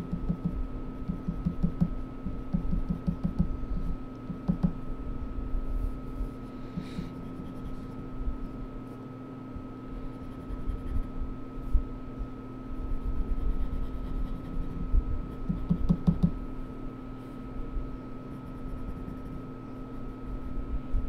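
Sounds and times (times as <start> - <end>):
steady background hum: 0.0 - 21.0
pencil scratching on paper: 6.2 - 8.0, 10.1 - 11.1, 13.0 - 16.0.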